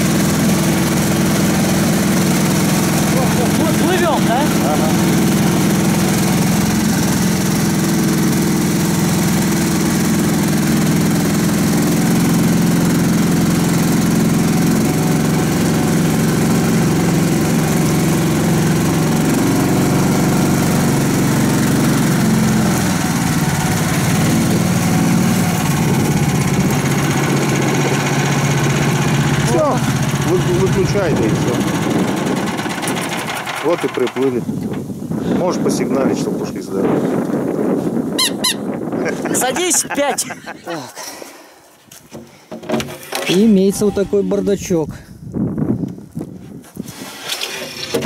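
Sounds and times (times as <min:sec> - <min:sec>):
vehicle engine running: 0:00.0 - 0:35.0.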